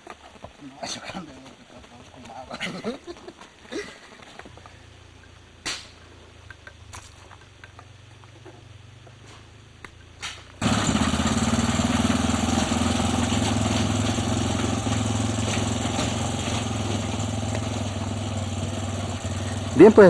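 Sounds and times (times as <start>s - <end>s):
small engine running: 10.5s - 20.0s.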